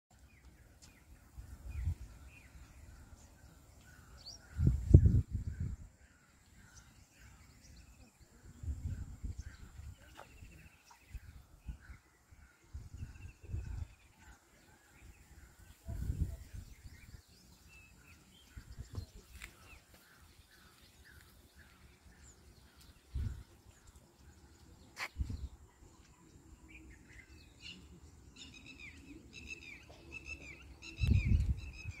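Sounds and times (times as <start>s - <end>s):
birds chirping: 0.1s - 32.0s
birds twittering: 0.1s - 32.0s
wind rumbling on microphone: 1.2s - 14.4s, 15.0s - 19.8s, 20.4s - 25.7s, 30.8s - 32.0s.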